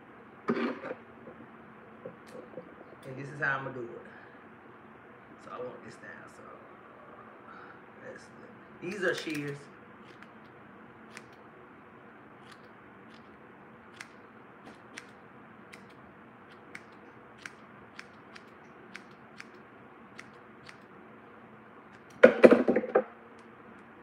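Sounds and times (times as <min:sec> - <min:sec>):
shears snipping hair: 0:08.8 - 0:10.5, 0:11.1 - 0:11.4, 0:12.4 - 0:19.6, 0:20.2 - 0:20.9, 0:21.9 - 0:22.3.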